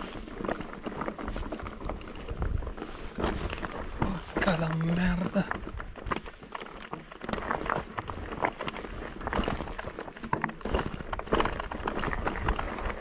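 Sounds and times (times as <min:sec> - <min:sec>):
mountain bike rattling over rocks: 0:00.0 - 0:13.0.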